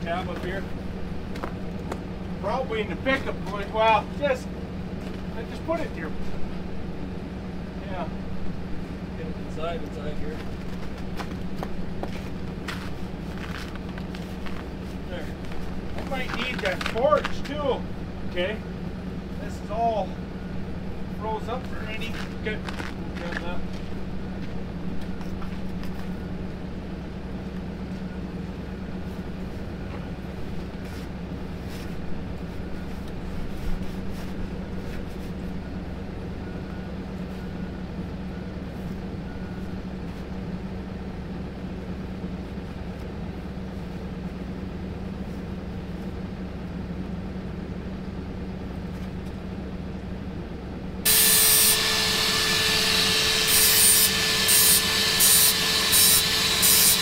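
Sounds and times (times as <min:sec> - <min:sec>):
generator humming: 0:00.0 - 0:57.0
loud rasping power tool: 0:51.1 - 0:57.0.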